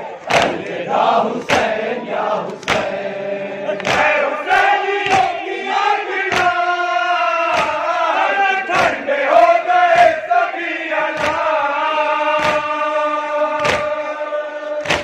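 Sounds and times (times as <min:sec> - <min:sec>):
group of voices chanting: 0:00.0 - 0:15.0
sharp beat: 0:07.5 - 0:07.9, 0:09.9 - 0:10.3.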